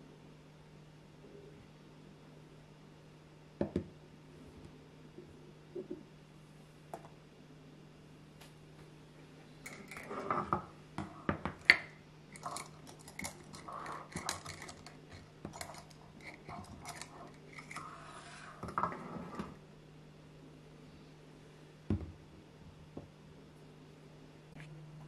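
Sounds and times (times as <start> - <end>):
faint steady hum: 0.0 - 25.0
measuring cups clacking on countertop: 9.7 - 17.9.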